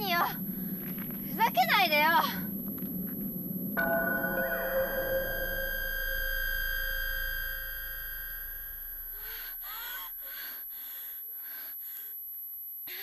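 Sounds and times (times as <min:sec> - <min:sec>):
high electronic tone: 0:03.8 - 0:09.4.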